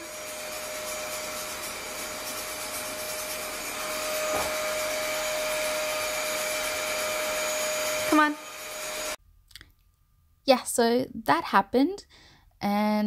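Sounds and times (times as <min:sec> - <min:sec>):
vacuum cleaner running: 0:00.0 - 0:09.2.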